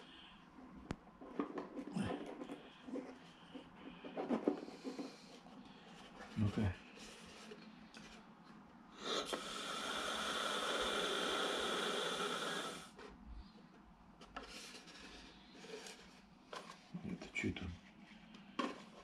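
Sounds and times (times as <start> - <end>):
air hissing into balloon: 9.0 - 13.0.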